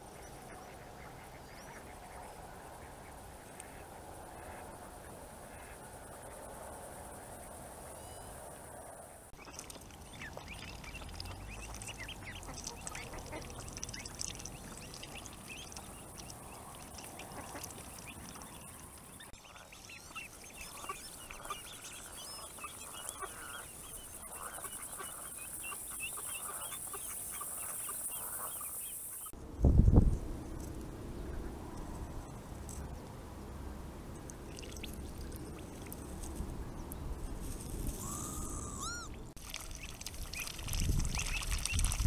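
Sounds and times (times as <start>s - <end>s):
duck calling: 38.0s - 39.2s
short repeated bird calls: 38.0s - 39.2s.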